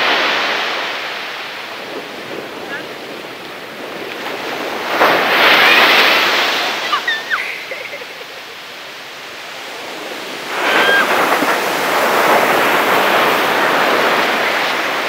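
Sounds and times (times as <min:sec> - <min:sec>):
sea surf breaking on beach: 0:00.0 - 0:15.0
baby squealing: 0:06.8 - 0:07.8, 0:10.6 - 0:11.2.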